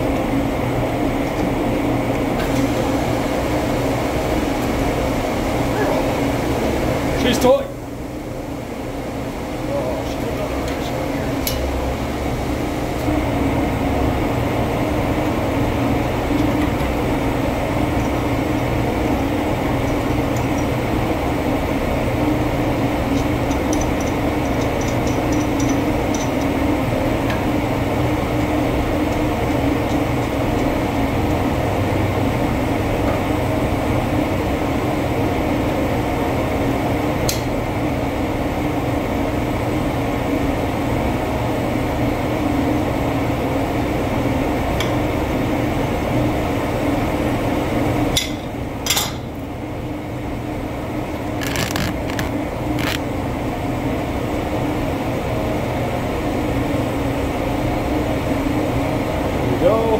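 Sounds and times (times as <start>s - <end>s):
boiler plant mechanical drone: 0.0s - 47.7s, 50.1s - 59.9s.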